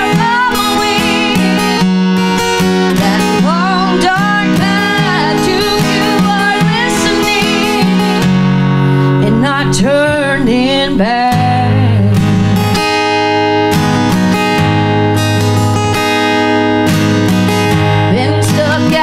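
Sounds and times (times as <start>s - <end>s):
woman singing: 0.0s - 8.4s, 9.1s - 13.0s, 17.9s - 19.0s
strummed acoustic guitar: 0.0s - 19.0s.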